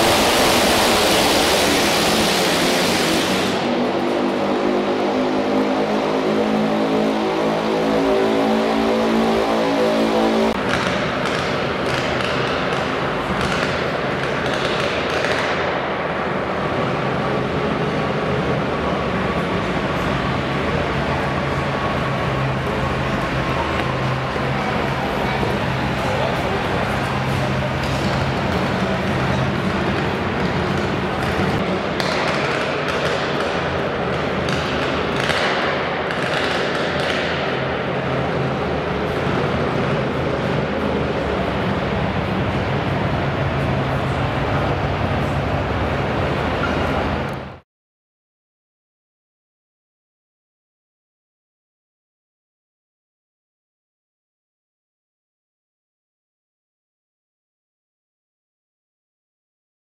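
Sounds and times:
arena noise: 0.0s - 47.6s.

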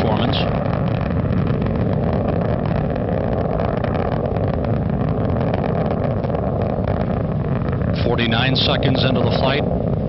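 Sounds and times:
rocket engines rumbling: 0.0s - 10.0s.

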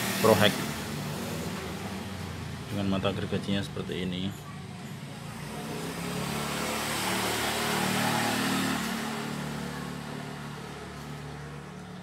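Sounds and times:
vehicle passing by: 4.9s - 12.0s.

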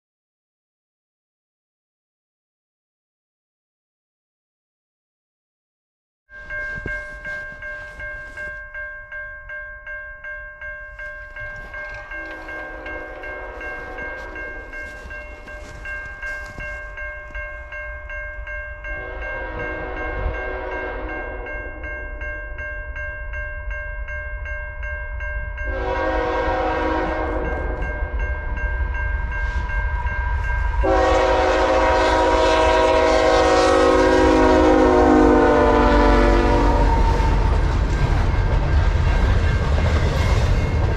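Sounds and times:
crossing warning bell ringing: 6.3s - 40.9s
locomotive horn blasts: 12.2s - 14.7s, 19.0s - 21.5s, 25.7s - 28.2s, 30.8s - 37.6s
locomotive engine rumble: 25.9s - 40.9s.

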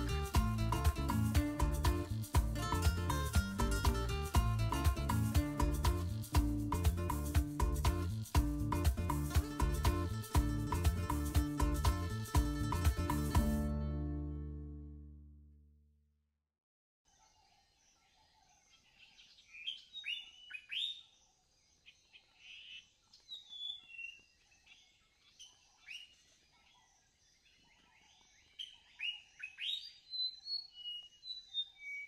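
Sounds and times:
songbirds chirping: 17.1s - 32.0s.

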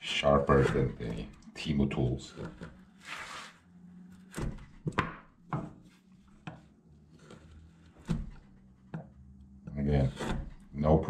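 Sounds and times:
knife scraping wood: 0.4s - 1.4s, 2.3s - 5.0s, 5.8s - 9.0s, 9.7s - 10.8s
knife slicing wood: 10.0s - 10.7s.

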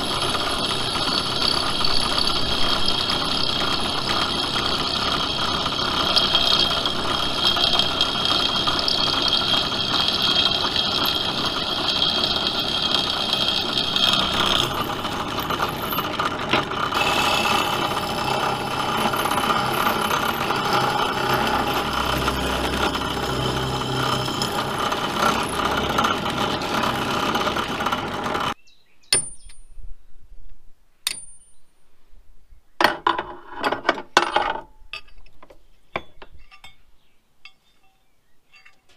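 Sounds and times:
drill press running: 0.0s - 28.6s.

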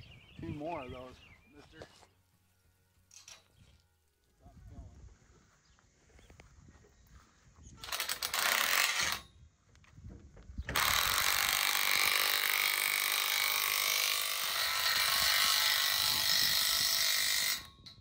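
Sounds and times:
cordless drill running: 7.8s - 9.2s, 10.7s - 17.8s.

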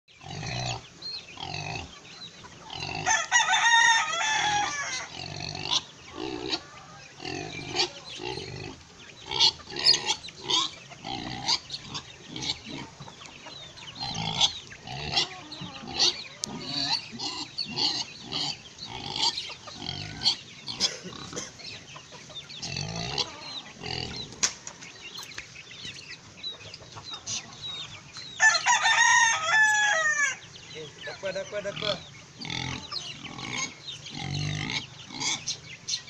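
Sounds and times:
chickens clucking: 0.1s - 36.0s
chicks peeping: 0.1s - 36.0s
rooster crowing: 3.0s - 5.2s, 28.4s - 30.5s.

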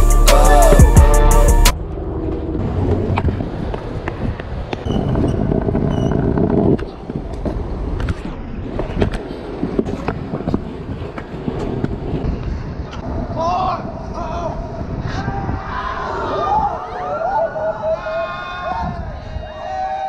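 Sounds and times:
music: 0.0s - 1.8s
scooter wheels rolling on paving: 2.3s - 13.2s
scooter deck scraping on stone: 3.1s - 13.0s.

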